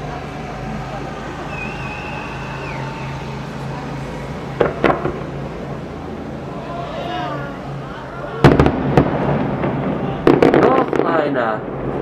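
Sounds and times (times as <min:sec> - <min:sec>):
thin high whistle: 0:01.4 - 0:03.6
distant firework bangs: 0:04.5 - 0:05.6, 0:08.4 - 0:11.4.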